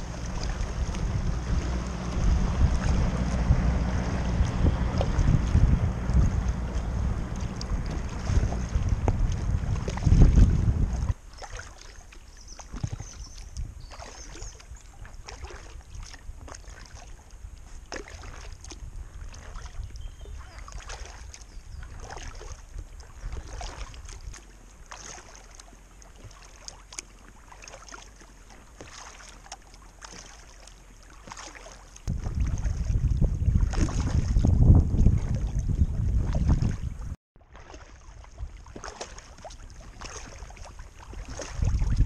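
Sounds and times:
wind buffeting microphone: 0.0 - 11.2, 12.7 - 13.9, 32.1 - 37.2, 39.4 - 42.0
paddle splashing water: 0.0 - 42.0.

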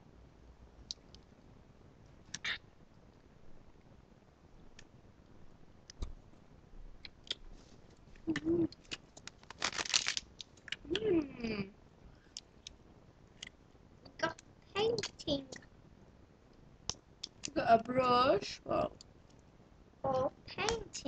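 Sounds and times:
girl's wordless vocal sounds: 8.3 - 8.8, 10.8 - 11.7.

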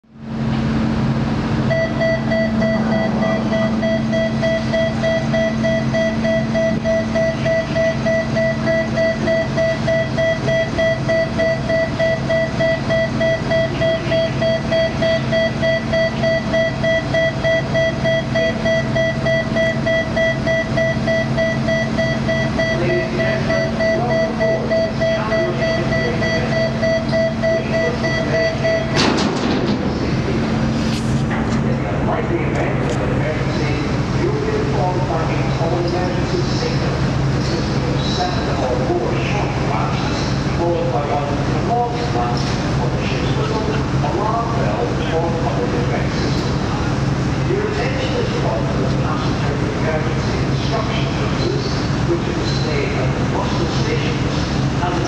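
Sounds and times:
low hum of ship machinery: 0.0 - 55.0
rapid warning alarm beeping: 1.7 - 29.2.

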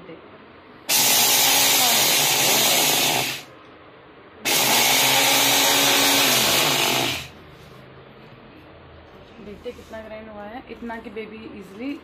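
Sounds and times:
mixer grinder grinding rice: 0.9 - 3.5, 4.5 - 7.4.

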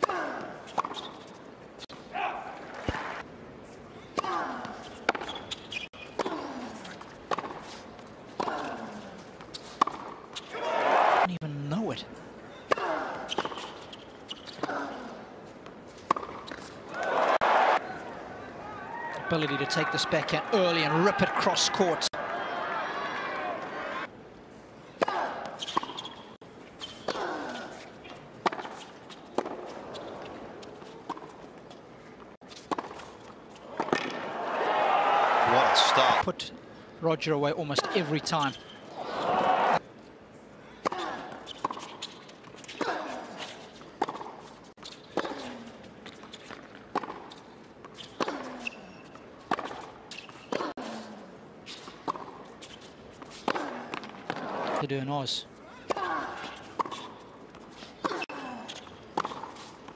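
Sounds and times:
shoes squeaking on court: 0.6 - 2.0, 3.7 - 8.6, 9.2 - 10.6, 12.5 - 16.9, 24.8 - 34.1, 37.9 - 39.5, 41.0 - 54.8, 56.1 - 59.9
tennis ball hit by racquets: 4.1 - 8.8, 9.6 - 10.5, 28.4 - 31.3, 32.6 - 33.1, 33.8 - 34.3, 46.4 - 48.8, 49.5 - 50.7, 51.7 - 54.8, 55.8 - 59.9.

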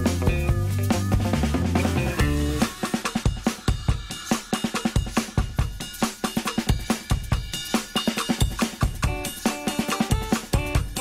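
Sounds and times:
held bass and chords: 0.0 - 2.9
fast drum pattern: 0.0 - 11.0.

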